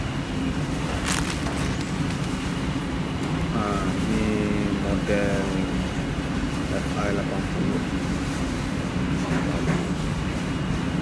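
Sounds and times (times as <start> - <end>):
dishwasher running: 8.8 - 11.0.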